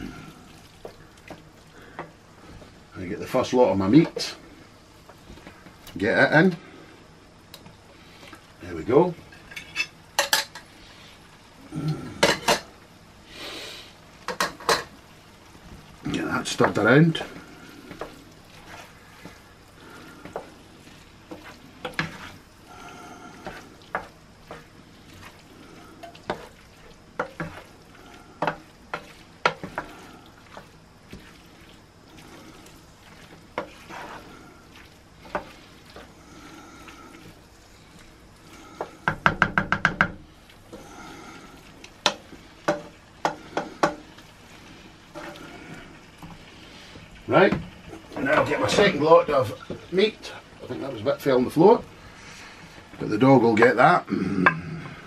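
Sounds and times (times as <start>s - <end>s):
frying pan sizzling: 0.0s - 55.0s
spoon knocking and scraping pan: 3.9s - 4.4s, 9.2s - 10.7s, 12.2s - 12.8s, 14.2s - 15.0s, 16.4s - 36.2s, 38.4s - 41.0s, 41.7s - 44.3s, 45.1s - 45.6s.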